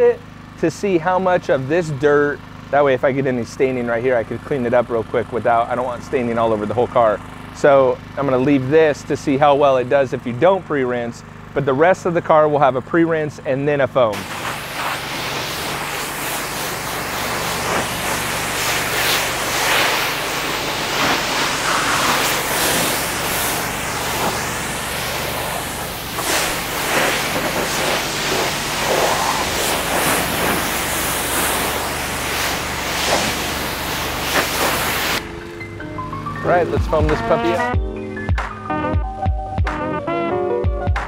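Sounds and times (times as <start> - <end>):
pressure washer spraying car: 0.2 - 10.3, 14.0 - 37.7
steady low hum: 14.0 - 38.0.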